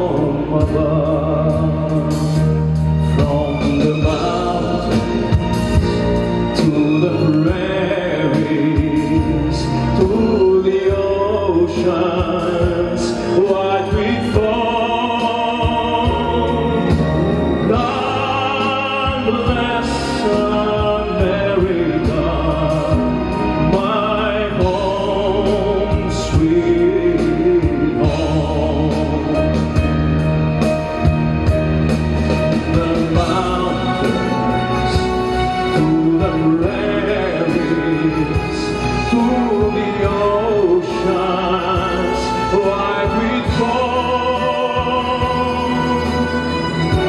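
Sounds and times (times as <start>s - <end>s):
instrumental backing track: 0.0s - 47.0s
man singing with vibrato: 0.0s - 47.0s.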